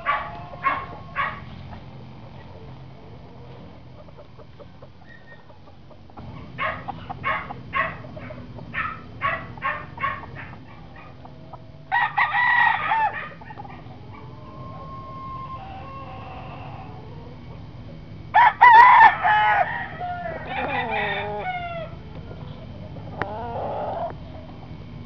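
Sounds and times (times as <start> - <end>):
rooster crowing: 0.0 - 1.5, 11.9 - 17.4, 18.3 - 22.0
rooster clucking: 0.0 - 18.0, 18.6 - 24.4.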